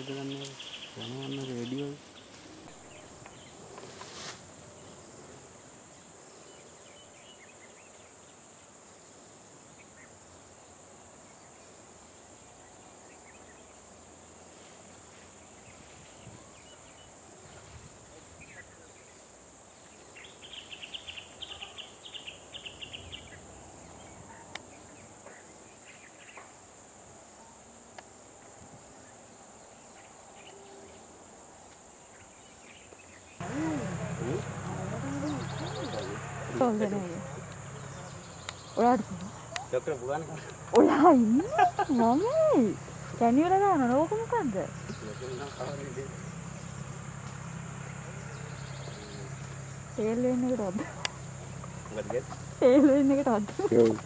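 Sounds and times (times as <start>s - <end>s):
rapid insect chirping: 0.0s - 54.0s
high-pitched insect drone: 33.4s - 54.0s.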